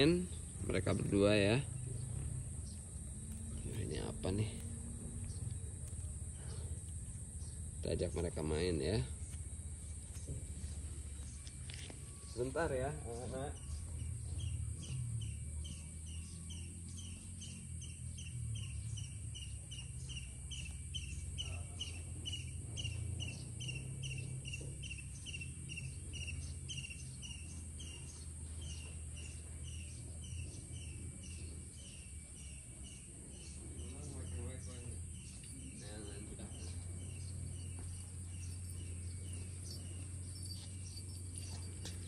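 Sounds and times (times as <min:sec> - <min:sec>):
insect chirping: 0:00.0 - 0:42.0
insects droning: 0:00.0 - 0:42.0
low rumble: 0:00.3 - 0:08.1.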